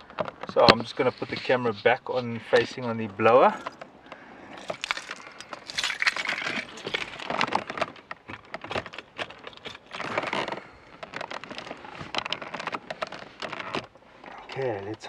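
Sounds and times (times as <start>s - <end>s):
clicks and knocks inside a car: 0.0s - 5.1s, 5.8s - 15.0s
rustling of handled things: 0.0s - 15.0s.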